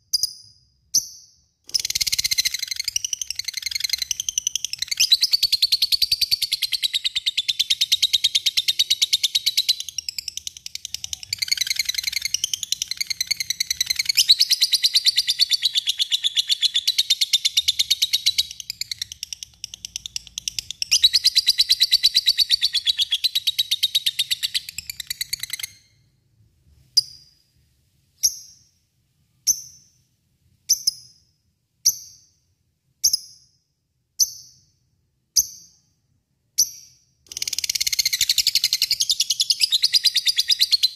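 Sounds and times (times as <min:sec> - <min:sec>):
bird sharp chirps: 0:00.0 - 0:26.1, 0:36.6 - 0:40.9.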